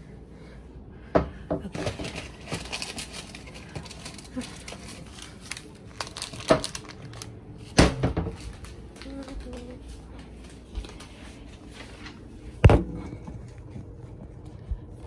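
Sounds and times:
kitchen knocks and clatters: 7.7s - 8.6s.

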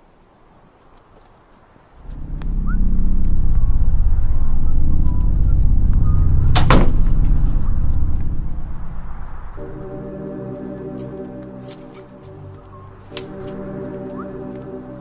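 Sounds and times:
deep pulsing rumble: 2.0s - 10.0s.

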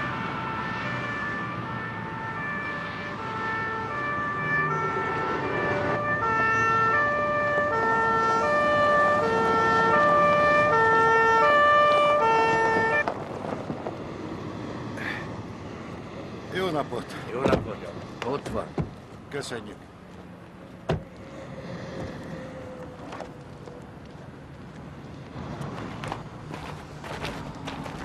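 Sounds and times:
two-tone emergency siren: 0.0s - 13.1s
vehicle noise: 0.0s - 28.0s.

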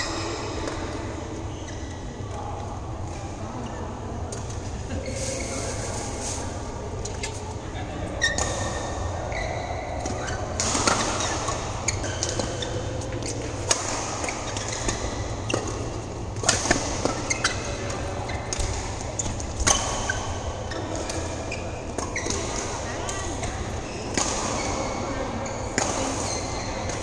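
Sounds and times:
shoes squeaking on court: 1.4s - 2.2s, 4.4s - 27.0s
rackets striking shuttlecocks: 9.8s - 27.0s.

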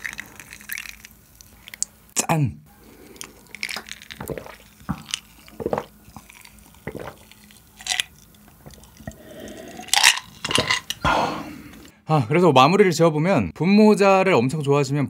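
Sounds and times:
man gulping milk: 2.7s - 11.9s.

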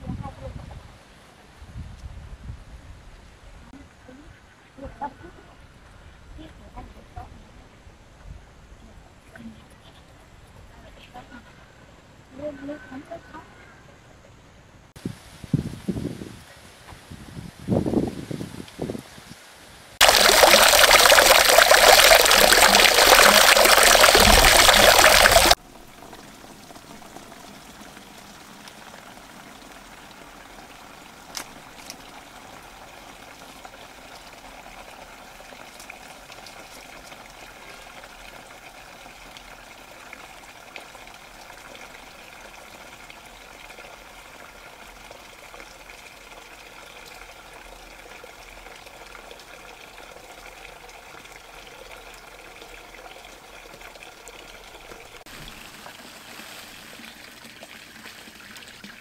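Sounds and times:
running water hiss: 14.9s - 59.0s.

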